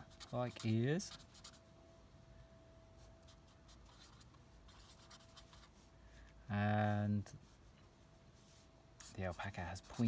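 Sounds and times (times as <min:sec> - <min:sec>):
marker pen scratching on paper: 0:00.0 - 0:01.6, 0:03.2 - 0:05.9, 0:08.5 - 0:10.0
faint steady hum: 0:00.0 - 0:10.0
man talking: 0:06.5 - 0:07.4, 0:09.1 - 0:10.0.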